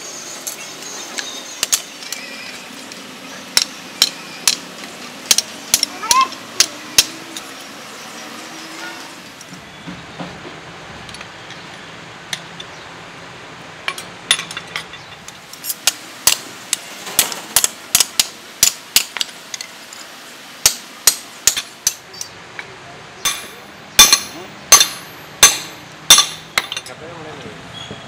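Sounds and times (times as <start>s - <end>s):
hammer striking steel on anvil: 3.5s - 4.7s, 5.3s - 5.9s, 6.6s - 7.5s, 15.7s - 19.3s, 20.6s - 22.1s, 23.2s - 26.9s.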